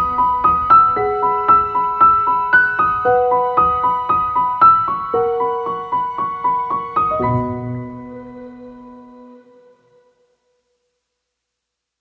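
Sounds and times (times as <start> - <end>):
piano repeating single notes: 0.0 - 9.4.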